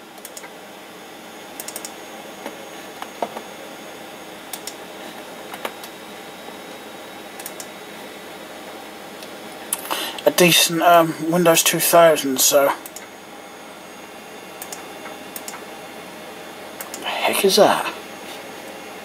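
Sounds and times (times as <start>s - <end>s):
desktop computer whirring: 0.0s - 19.0s
computer mouse clicks: 0.2s - 0.5s, 1.6s - 2.0s, 4.5s - 4.8s, 7.4s - 7.7s, 12.8s - 13.1s, 14.6s - 14.8s, 15.4s - 15.6s, 16.8s - 17.0s.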